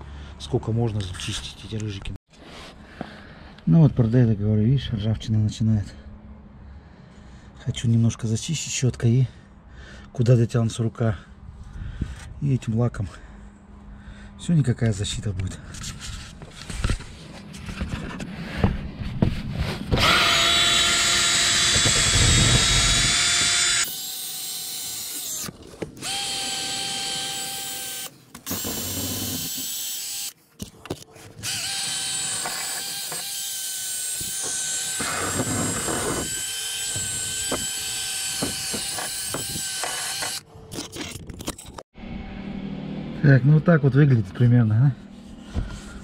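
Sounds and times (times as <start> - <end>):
drill wire brush scouring metal: 20.0 - 30.4, 31.4 - 40.4.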